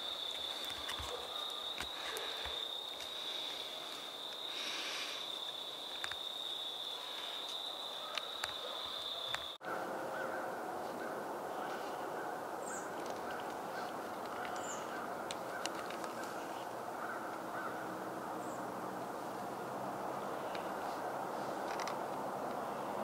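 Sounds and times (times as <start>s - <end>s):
faint bird calls: 6.9s - 18.7s.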